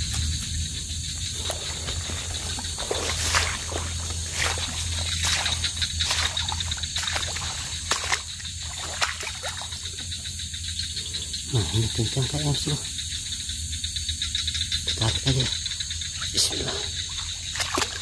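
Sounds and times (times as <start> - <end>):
footsteps through wet grass and mud: 0.0 - 9.8
night insects chorus: 0.0 - 18.0.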